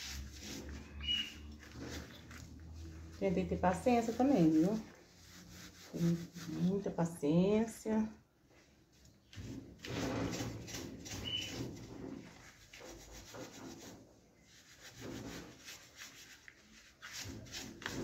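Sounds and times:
steel wool scrubbing metal: 0.0s - 6.9s.

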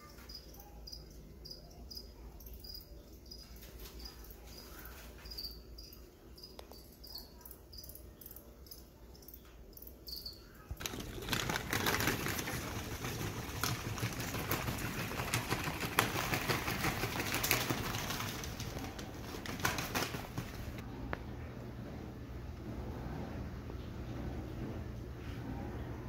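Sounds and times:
crickets chirping: 0.0s - 10.6s
rustling and clicking handling noise: 10.7s - 20.8s.

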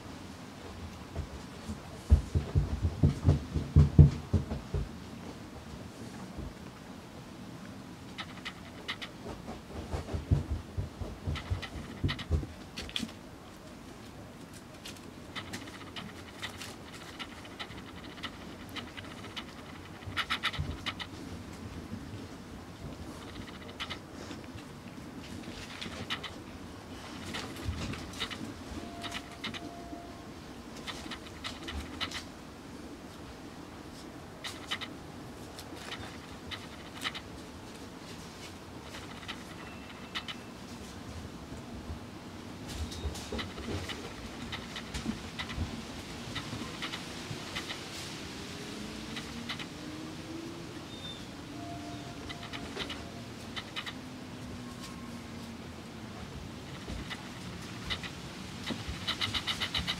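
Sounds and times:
puppies panting and scuffling: 8.1s - 13.2s, 14.5s - 21.4s, 22.8s - 29.8s, 30.8s - 32.3s, 34.4s - 34.9s, 35.5s - 41.0s, 42.7s - 50.1s, 52.2s - 55.6s, 56.6s - 59.9s
puppy paws scratching on dry leaves: 14.5s - 21.1s.

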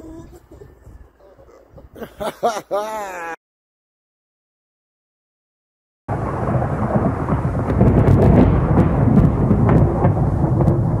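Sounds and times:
thunder rumble with crackles: 6.1s - 11.0s.

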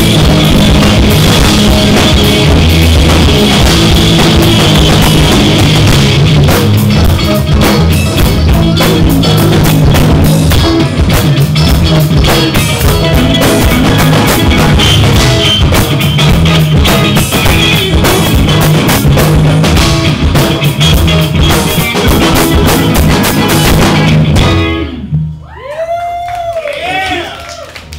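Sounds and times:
drum kit: 0.0s - 25.4s
electric guitars: 0.0s - 25.5s
bass guitar: 0.0s - 27.9s.

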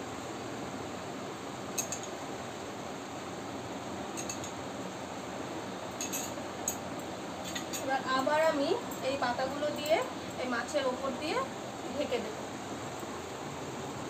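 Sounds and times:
steady background hiss: 0.0s - 14.0s
metal spoon clinking on glass bowl: 1.8s - 2.1s, 4.2s - 4.5s, 6.0s - 6.8s.

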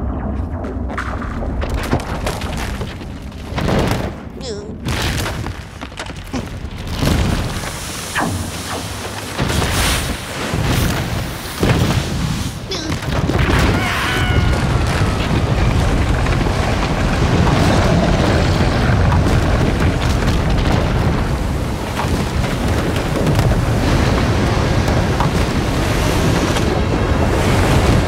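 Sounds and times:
rushing crashing floodwater rumble: 0.8s - 28.0s.

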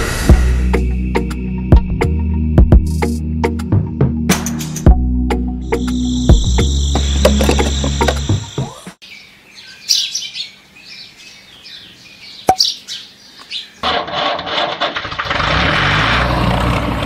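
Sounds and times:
birds chirping: 5.6s - 13.8s.

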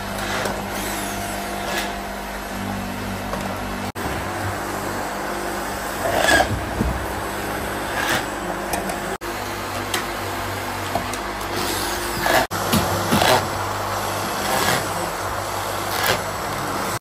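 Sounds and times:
workshop hiss and hum: 0.0s - 17.0s.

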